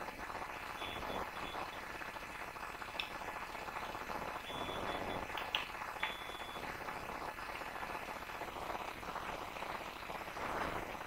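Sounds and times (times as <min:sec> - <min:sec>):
microphone hiss: 0:00.0 - 0:11.0.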